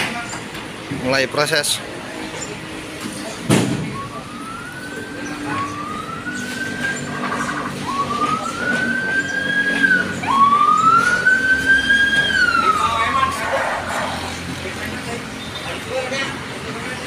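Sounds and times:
siren wailing: 3.8 - 14.6.

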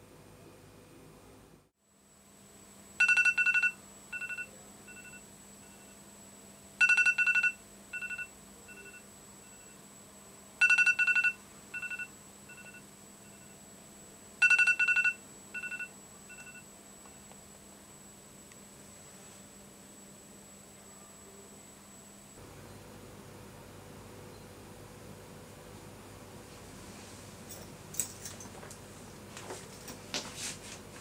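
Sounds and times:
faint steady hum: 0.0 - 31.0
phone electronic beeps: 3.0 - 6.0, 6.8 - 9.8, 10.6 - 13.6, 14.4 - 16.6.

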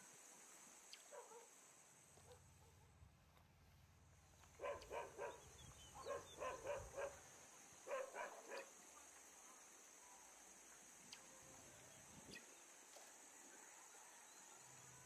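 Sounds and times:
dog barking: 1.1 - 1.5, 2.2 - 2.9, 4.6 - 7.2, 7.8 - 8.7.

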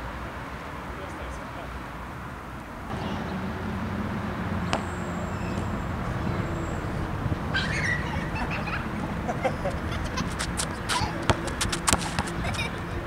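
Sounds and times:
wind buffeting microphone: 2.8 - 13.0.

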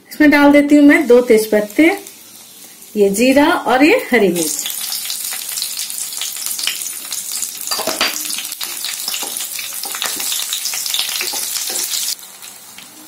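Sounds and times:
spices sizzling in hot oil: 0.7 - 13.0
spatula stirring in pan: 7.6 - 12.2.

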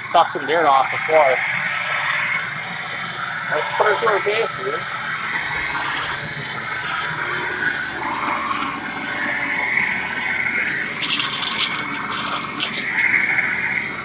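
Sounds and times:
vacuum cleaner running: 0.0 - 14.0.

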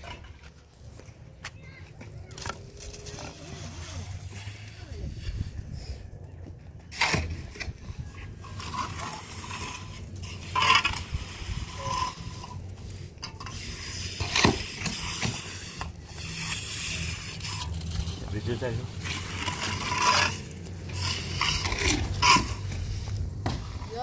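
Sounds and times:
shovel and trowel scraping mortar: 2.3 - 6.1, 6.8 - 24.0
loud scrapes or knocks: 6.9 - 24.0.

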